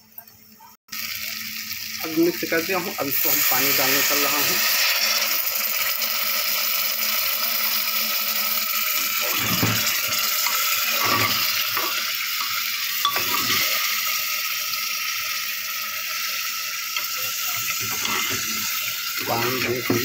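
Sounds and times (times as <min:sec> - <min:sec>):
ladle stirring rice and water: 0:09.0 - 0:13.9, 0:17.0 - 0:20.0.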